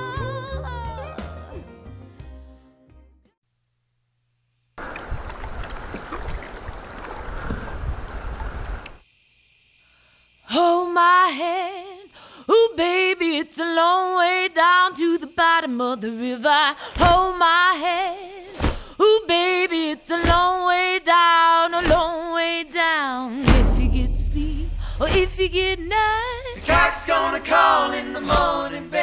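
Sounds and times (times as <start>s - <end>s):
woman singing with vibrato: 10.5s - 29.0s.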